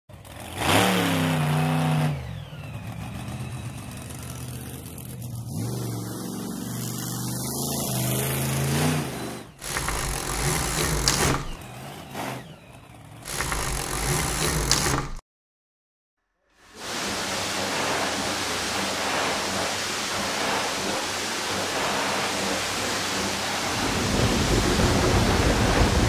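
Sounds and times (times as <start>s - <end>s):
truck engine revving: 0.1s - 15.2s, 16.8s - 26.0s
rough rumbling: 17.5s - 26.0s.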